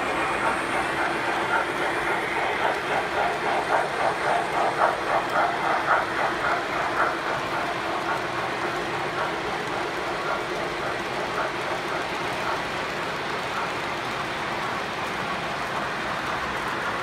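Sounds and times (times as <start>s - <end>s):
model trains running on track: 0.0s - 17.0s.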